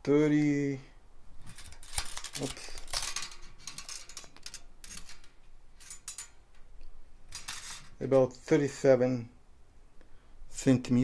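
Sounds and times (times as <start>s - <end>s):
tape measure scraping metal: 1.5s - 6.4s, 7.3s - 8.0s.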